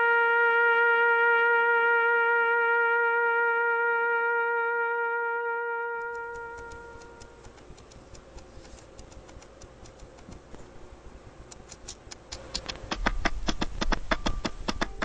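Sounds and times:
gecko crunching insect clicks: 0:06.3 - 0:10.5.

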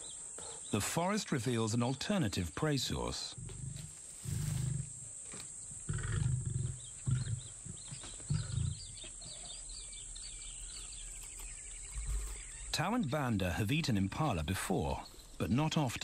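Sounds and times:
lions grunting: 0:03.3 - 0:05.0, 0:05.8 - 0:11.1.

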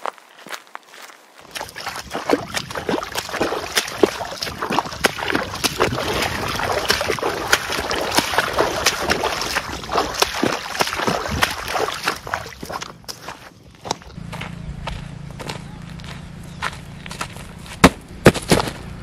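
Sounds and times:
footsteps splashing through water: 0:00.0 - 0:15.0
water sloshing: 0:01.4 - 0:14.2.

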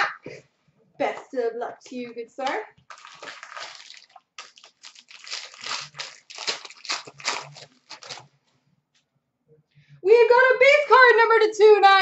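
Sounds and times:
plastic wrapping crinkling: 0:02.9 - 0:08.5.

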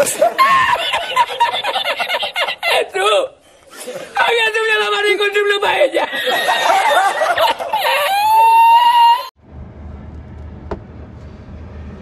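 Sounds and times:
man laughing: 0:00.0 - 0:03.2, 0:05.8 - 0:08.4
low steady rumble: 0:09.4 - 0:12.0.

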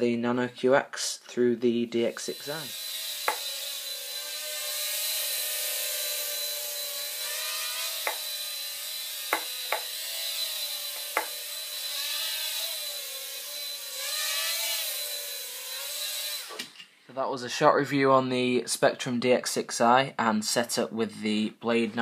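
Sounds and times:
quadcopter propellers buzzing: 0:02.3 - 0:16.5.

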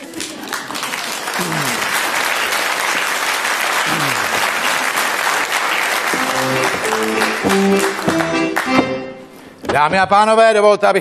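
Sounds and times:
audience applauding: 0:00.0 - 0:09.3
band playing music: 0:06.2 - 0:09.4.

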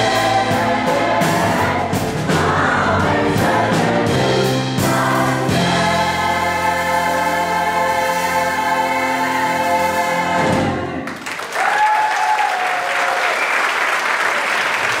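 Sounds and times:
gospel choir with band: 0:00.0 - 0:11.2
applause: 0:11.0 - 0:15.0
person cheering: 0:11.5 - 0:13.4.

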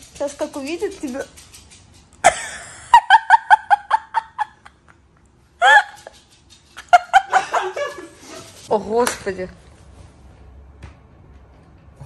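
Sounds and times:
high-pitched giggling: 0:05.6 - 0:06.2.

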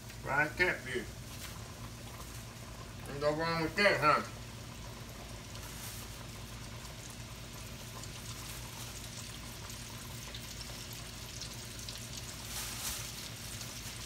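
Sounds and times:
hot oil sizzling in a wok: 0:00.0 - 0:14.0
paper bag rustling: 0:05.6 - 0:06.2, 0:12.4 - 0:14.0.

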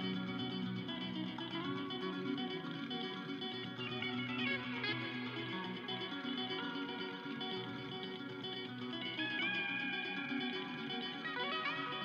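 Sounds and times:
plucked guitar notes: 0:00.0 - 0:12.0.

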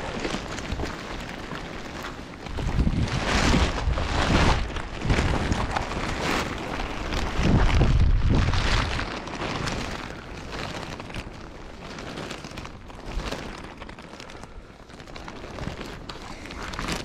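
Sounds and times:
wind buffeting microphone: 0:00.0 - 0:11.8.

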